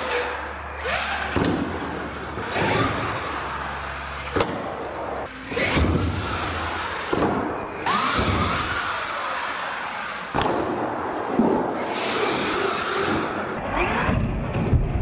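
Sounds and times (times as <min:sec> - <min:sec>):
toy truck motor revving: 0:00.0 - 0:01.4, 0:02.1 - 0:04.4, 0:05.2 - 0:07.2, 0:07.8 - 0:10.3, 0:11.8 - 0:13.6
tyres on concrete floor: 0:00.0 - 0:14.8.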